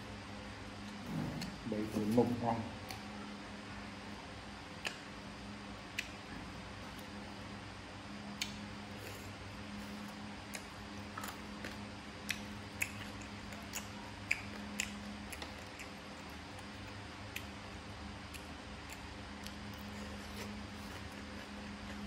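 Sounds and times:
steady low hum: 0:00.0 - 0:22.0
person chewing with wet clicks: 0:02.8 - 0:03.1, 0:04.6 - 0:07.5, 0:08.2 - 0:22.0.

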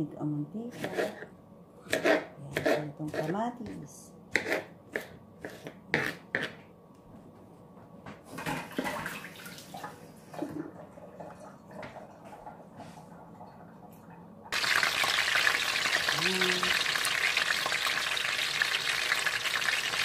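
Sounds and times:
knife chopping on plastic board: 0:01.9 - 0:06.6.

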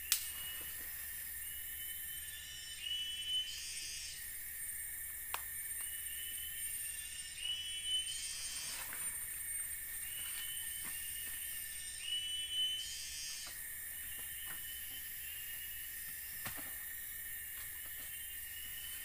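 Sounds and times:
chorus of forest insects: 0:00.0 - 0:19.0
rising insect whine: 0:00.0 - 0:19.0
campfire snapping: 0:00.1 - 0:00.3, 0:05.3 - 0:05.9.

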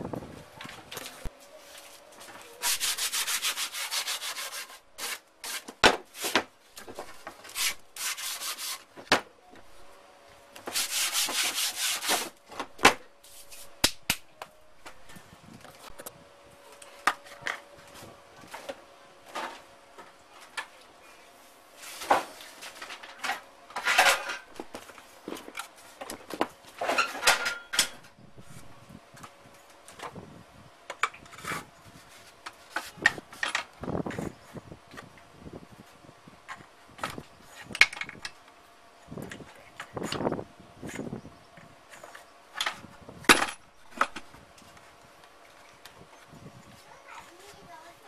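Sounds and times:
hands rubbing over pipe: 0:13.2 - 0:13.9.

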